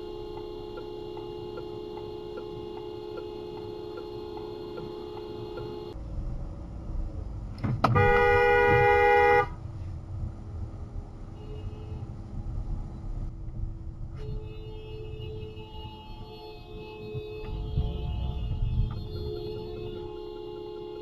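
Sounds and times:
car horn blast: 0.0 - 6.0, 7.8 - 9.6, 14.2 - 21.0
car rolling rumble: 0.0 - 21.0.

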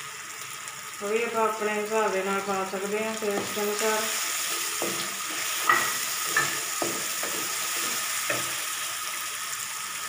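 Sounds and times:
food sizzling in oil: 0.0 - 10.0
spatula scraping a pan: 3.4 - 8.7
spatula knocking a pan: 4.6 - 8.6.

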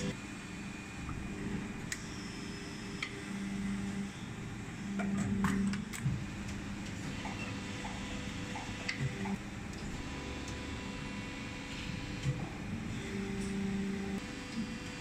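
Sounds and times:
machine humming: 0.0 - 15.0.

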